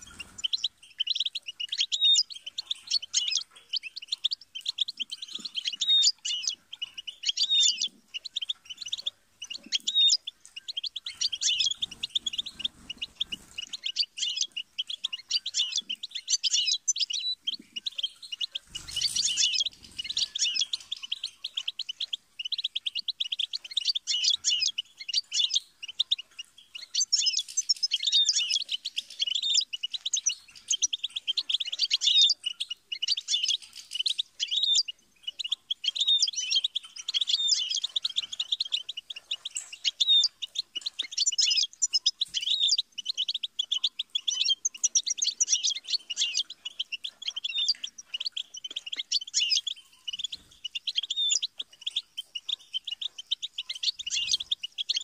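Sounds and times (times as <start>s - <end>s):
goldfinch twittering song: 0.0s - 55.0s.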